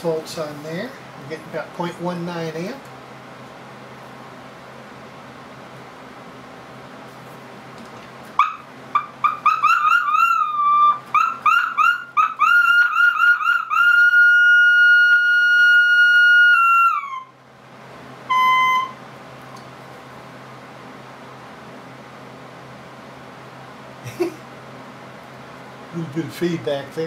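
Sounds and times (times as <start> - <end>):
radio feedback whistling: 18.3 - 19.0.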